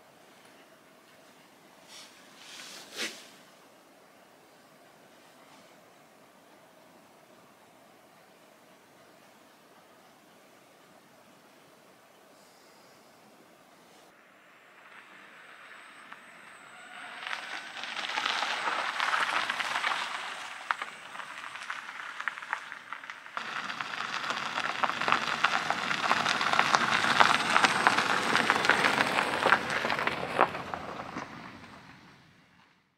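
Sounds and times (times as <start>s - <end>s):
car tyres crunching on gravel: 14.6s - 32.8s.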